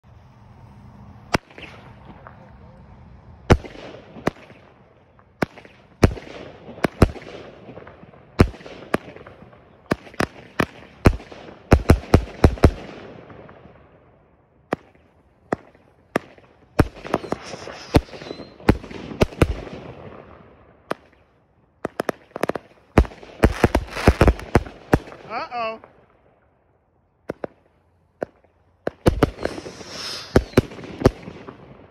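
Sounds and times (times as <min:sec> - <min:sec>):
firework bangs: 0:01.2 - 0:26.4, 0:27.2 - 0:31.9
firework hiss: 0:16.8 - 0:19.4, 0:23.4 - 0:25.8, 0:28.9 - 0:31.6.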